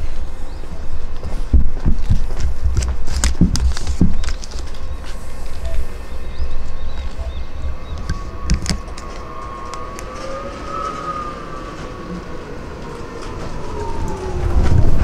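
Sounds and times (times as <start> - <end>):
low rumble: 0.0 - 15.0
electric tram motor whine: 4.4 - 15.0.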